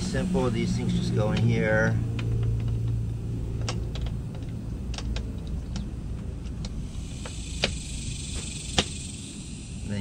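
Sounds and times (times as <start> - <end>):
low background rumble: 0.0 - 10.0
light clicks and taps of parts: 1.3 - 7.8.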